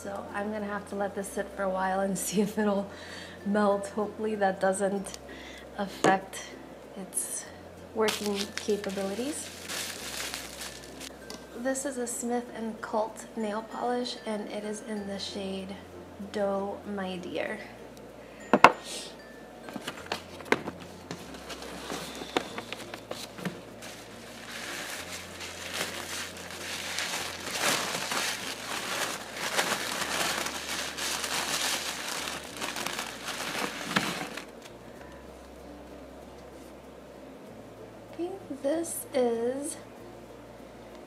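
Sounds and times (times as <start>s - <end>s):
tissue paper rustling: 8.1s - 11.1s, 19.8s - 34.7s.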